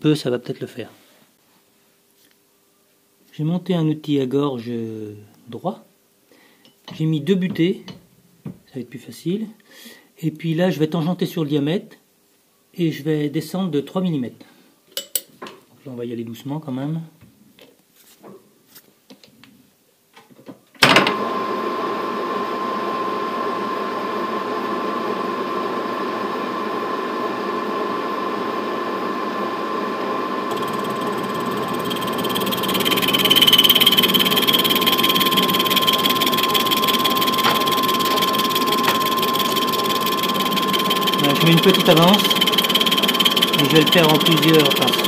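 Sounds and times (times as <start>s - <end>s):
metal lathe whining: 21.1s - 45.0s
cutting tool squealing: 30.5s - 45.0s.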